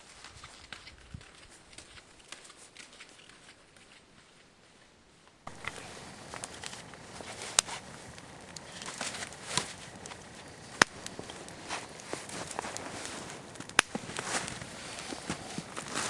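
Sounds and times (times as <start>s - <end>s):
boots crunching in snow: 5.5s - 16.0s.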